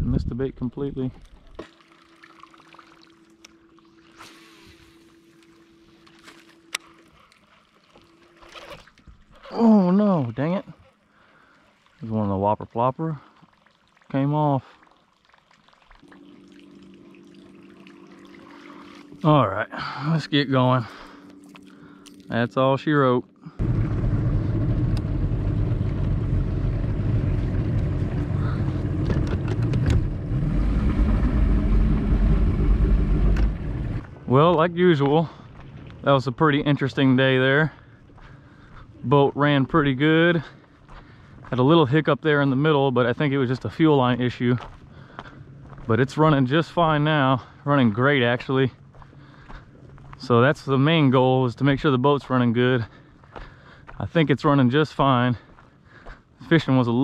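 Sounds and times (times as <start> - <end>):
faint steady hum: 0.0 - 51.9
outboard motor running: 16.0 - 22.3, 23.4 - 34.6.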